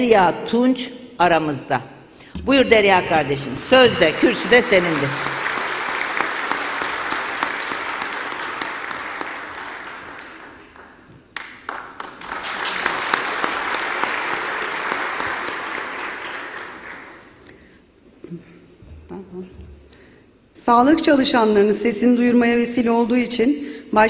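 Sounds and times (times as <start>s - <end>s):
audience applauding: 3.6s - 17.4s.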